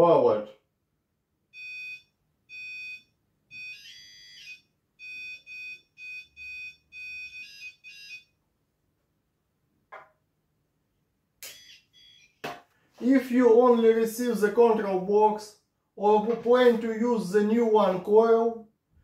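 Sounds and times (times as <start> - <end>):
metal detector beeping: 11.4 - 12.4.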